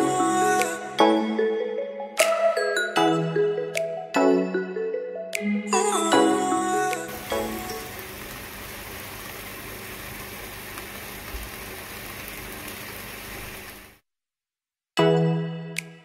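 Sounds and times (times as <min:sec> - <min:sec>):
bacon sizzling in a frying pan: 0:07.1 - 0:14.0.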